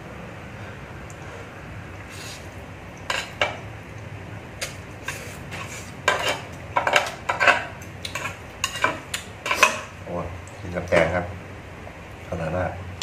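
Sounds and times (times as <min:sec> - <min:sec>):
utensils clinking against pot: 0:03.1 - 0:03.6, 0:05.0 - 0:09.9.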